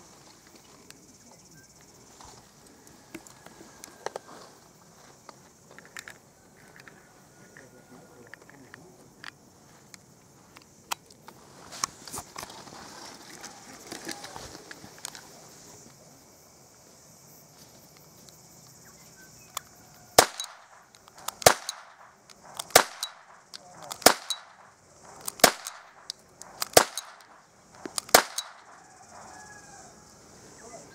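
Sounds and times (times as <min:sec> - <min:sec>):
starter pistol shots: 0:20.2 - 0:27.4, 0:28.0 - 0:28.7.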